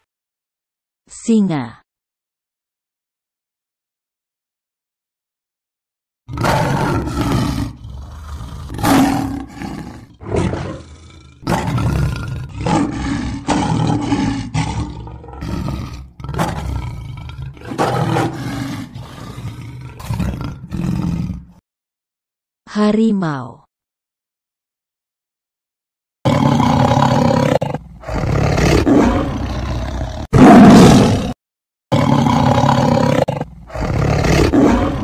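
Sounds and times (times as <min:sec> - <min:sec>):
lions roaring: 0:06.3 - 0:21.6, 0:26.3 - 0:35.0.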